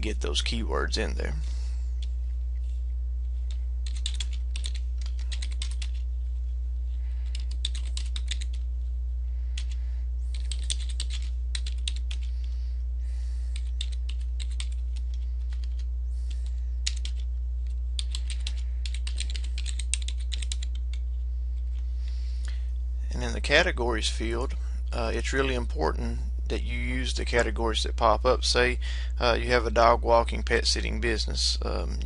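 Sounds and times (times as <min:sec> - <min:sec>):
steady low hum: 0:00.0 - 0:32.0
typing on computer keyboard: 0:03.8 - 0:06.0, 0:07.3 - 0:08.6, 0:09.6 - 0:12.3, 0:13.5 - 0:15.8, 0:16.4 - 0:17.2, 0:18.0 - 0:21.0.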